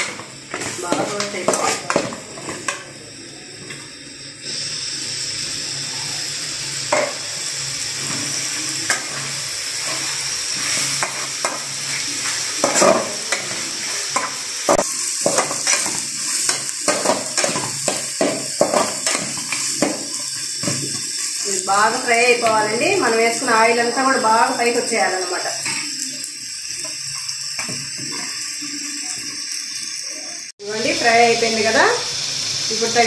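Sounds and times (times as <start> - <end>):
metal spatula scraping pan: 0.0 - 2.8
meat sizzling in oil: 0.0 - 33.0.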